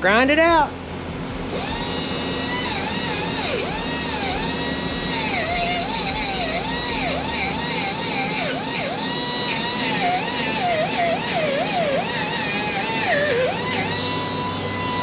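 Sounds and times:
power grinder grinding metal: 1.3s - 15.0s.

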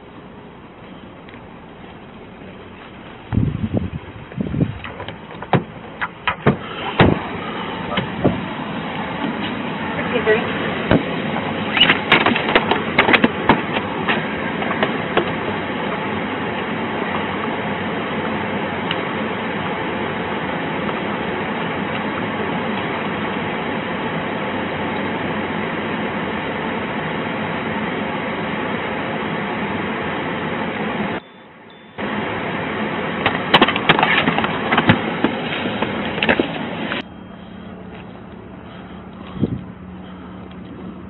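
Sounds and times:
car engine running: 0.0s - 41.0s
ventilation fan rushing: 0.0s - 41.0s
sharp clicks and knocks: 4.8s - 7.2s, 11.7s - 15.4s.

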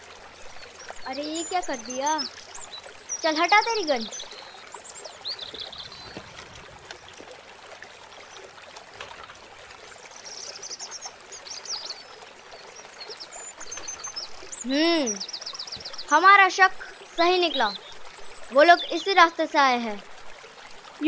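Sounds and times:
small birds chirping: 0.0s - 7.2s, 9.9s - 20.0s
stream trickling over rocks: 0.0s - 21.0s.

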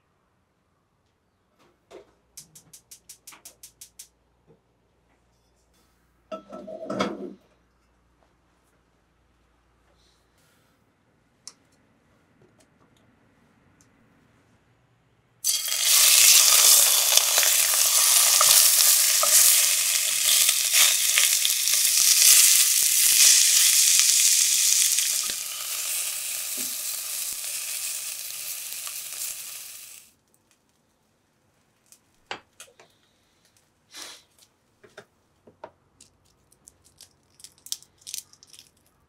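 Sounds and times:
fish sizzling in hot oil: 15.4s - 30.1s.

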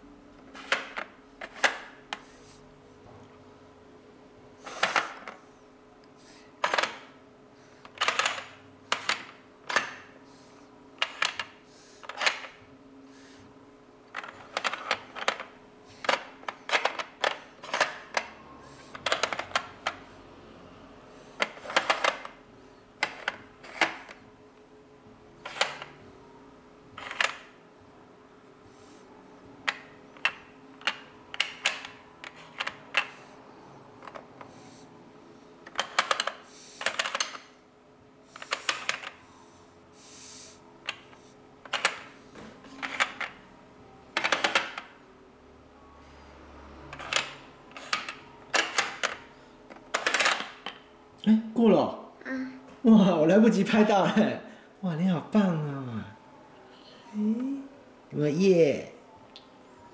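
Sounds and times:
plastic puzzle pieces clacking: 14.2s - 18.2s, 19.0s - 20.0s, 35.7s - 37.4s, 49.9s - 50.8s.

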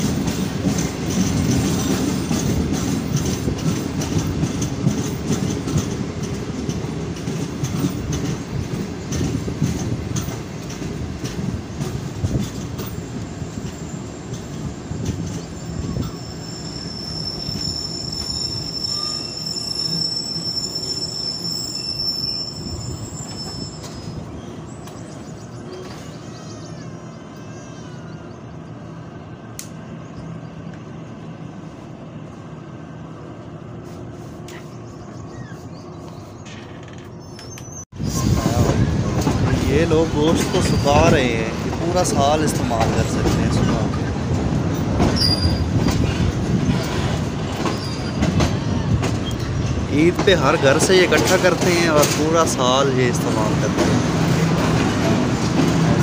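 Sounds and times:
train wheels clattering over rail joints: 0.0s - 15.5s, 38.4s - 56.0s
high wheel squeal: 15.3s - 24.6s, 40.2s - 41.4s, 45.1s - 49.8s.

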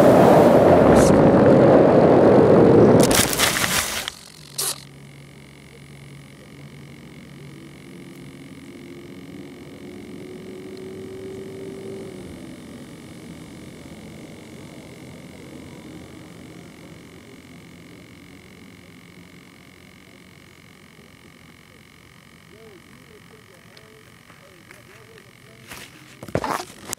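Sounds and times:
wind rushing over microphone: 0.0s - 3.6s
faint steady hum: 0.0s - 26.9s
plane scraping through grass: 3.0s - 4.8s, 25.6s - 26.9s
sharp click: 3.0s - 4.9s.

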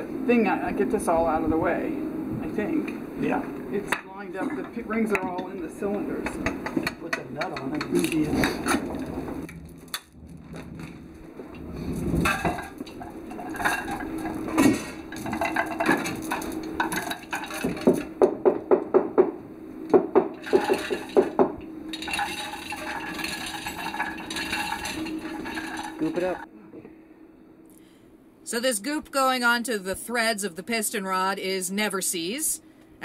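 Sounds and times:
faint steady hum: 0.0s - 33.0s
metal scraping: 4.3s - 18.2s, 20.3s - 26.5s
metal tools clinking and knocking: 12.2s - 18.1s, 20.3s - 26.4s.

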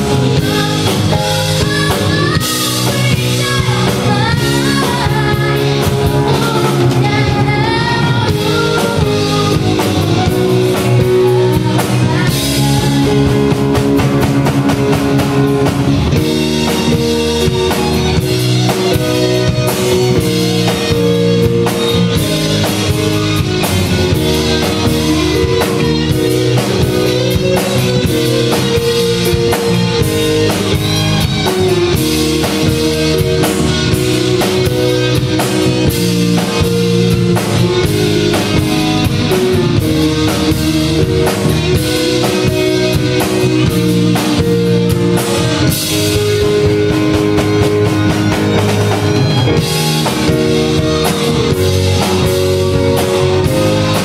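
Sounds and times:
bass guitar: 0.0s - 54.0s
drum kit beat: 0.0s - 54.0s
electric guitars: 0.0s - 54.0s
keyboards sustained notes: 0.0s - 54.0s.

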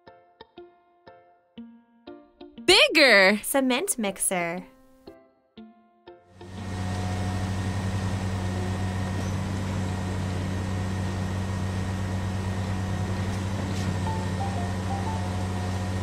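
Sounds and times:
truck engine droning hum: 6.4s - 16.0s.

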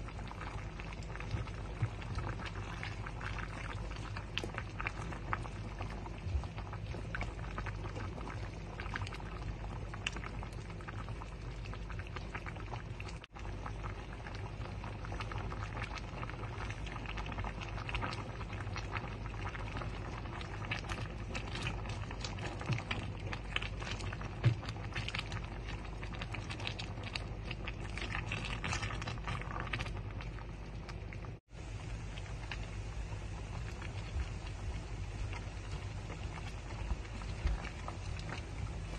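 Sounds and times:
broth bubbling in a pot: 0.0s - 38.9s.

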